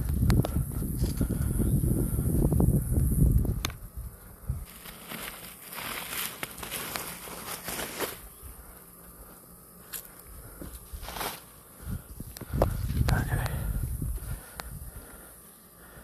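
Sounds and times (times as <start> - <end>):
rustling: 4.6 - 9.2, 9.8 - 12.1.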